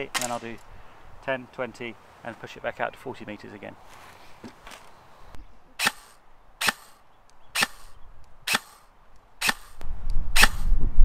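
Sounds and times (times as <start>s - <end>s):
airsoft rifle shots: 5.8s - 7.0s, 7.6s - 9.8s, 10.4s - 10.7s.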